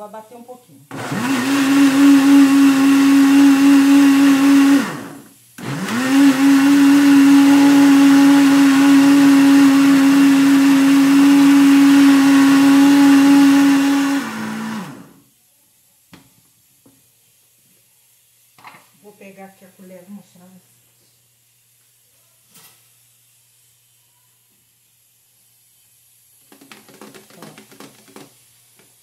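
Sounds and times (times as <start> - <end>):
blender motor running: 0.9 - 15.2.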